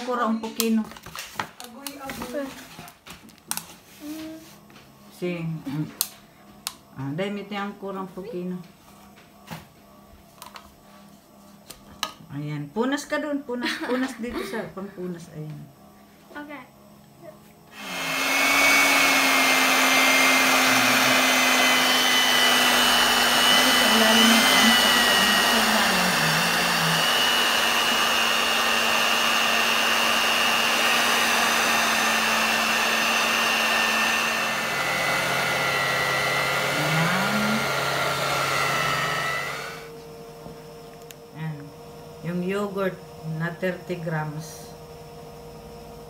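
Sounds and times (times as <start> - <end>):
electric mixer motor whine: 17.6 - 46.0.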